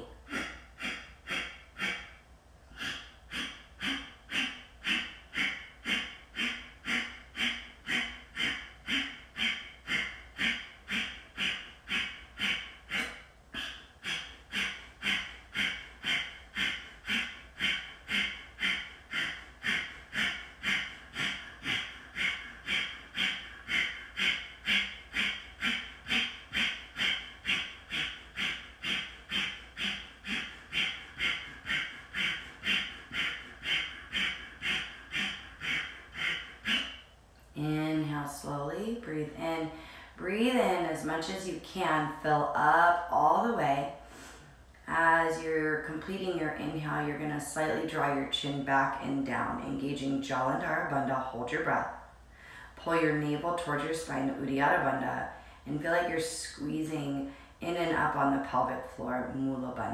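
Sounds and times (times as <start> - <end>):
forceful nasal exhales: 44.0 - 44.6.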